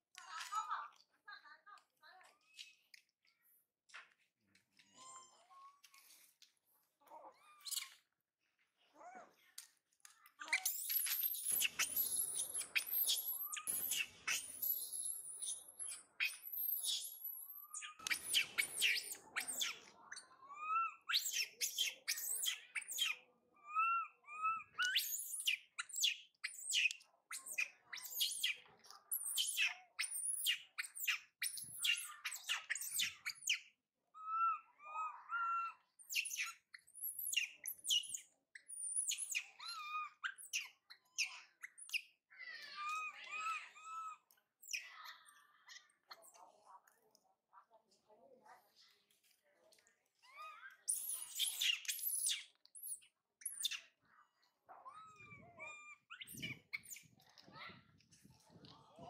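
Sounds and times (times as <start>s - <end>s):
infant monkey screaming: 10.5s - 33.6s, 34.2s - 36.4s, 42.4s - 44.8s.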